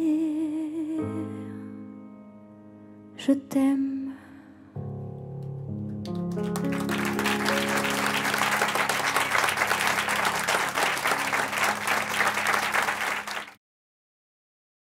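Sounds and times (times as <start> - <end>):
grand piano chords: 1.0 - 13.5
audience applause: 6.1 - 13.6.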